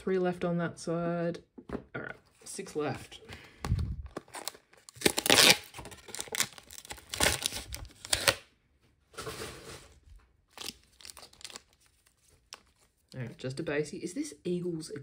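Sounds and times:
card pack wrappers tearing: 0:04.1 - 0:08.4, 0:10.5 - 0:12.9.

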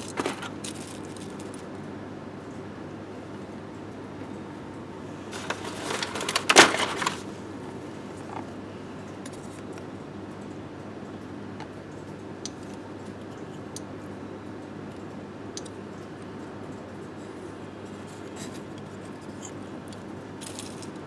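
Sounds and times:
plastic toy pieces clattering: 0:00.0 - 0:01.7, 0:05.3 - 0:07.3, 0:20.4 - 0:21.0.

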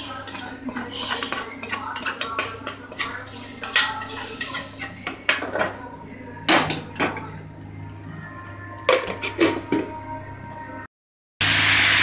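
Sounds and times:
spoon scraping a metal pan: 0:00.0 - 0:05.7.

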